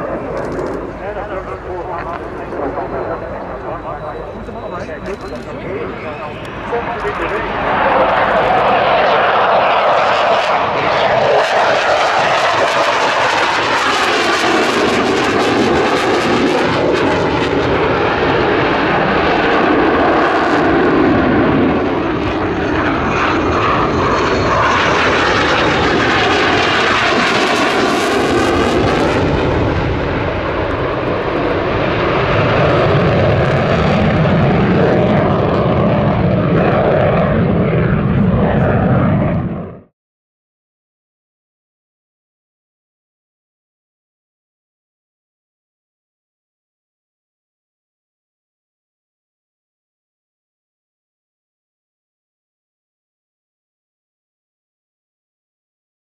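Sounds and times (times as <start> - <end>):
jet afterburners: 0.0 - 39.9
jet engine roar: 0.0 - 39.9.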